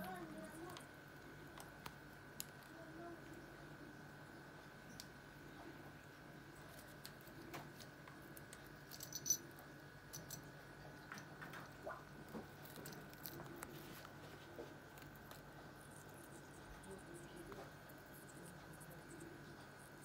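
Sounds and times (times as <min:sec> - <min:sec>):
bird beak chewing leaf: 0:11.4 - 0:20.0.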